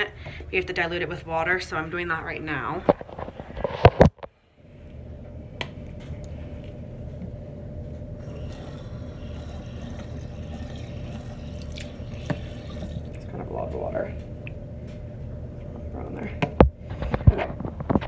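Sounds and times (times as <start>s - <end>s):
faucet running: 8.2s - 13.6s.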